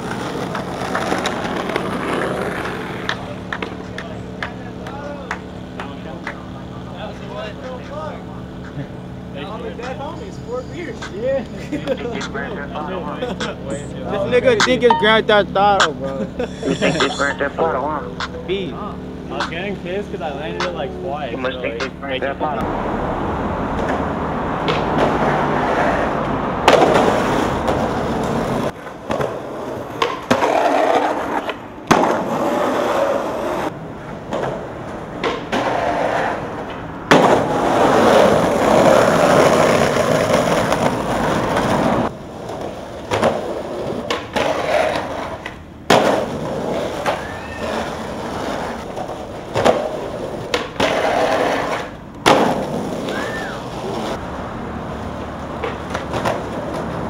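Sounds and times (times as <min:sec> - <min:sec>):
skateboard clacking on ground: 0:00.0 - 0:08.9, 0:26.6 - 0:54.2, 0:55.5 - 0:57.0
skateboard wheels rolling on concrete: 0:00.0 - 0:16.6, 0:17.6 - 0:57.0.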